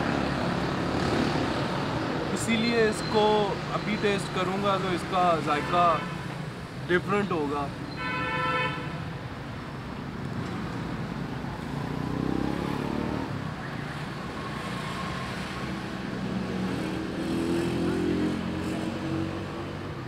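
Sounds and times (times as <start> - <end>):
cars and motorbikes passing: 0.0 - 20.0.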